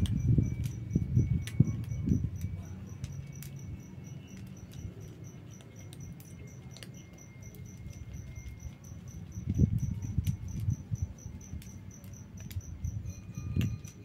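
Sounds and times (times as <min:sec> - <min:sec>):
insect chirping: 0:00.0 - 0:14.0
kittens crunching dry kibble: 0:01.4 - 0:11.6.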